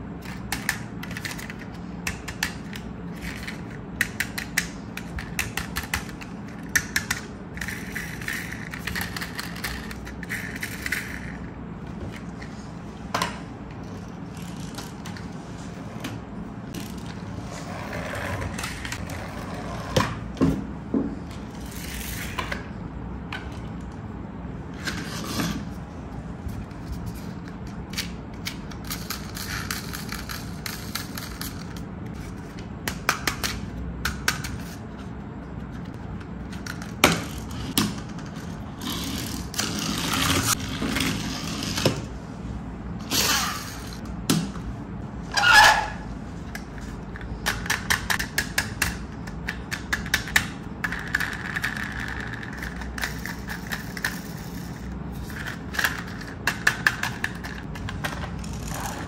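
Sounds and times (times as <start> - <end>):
plastic toys clicking and knocking: 0.2 - 11.4, 46.6 - 59.0.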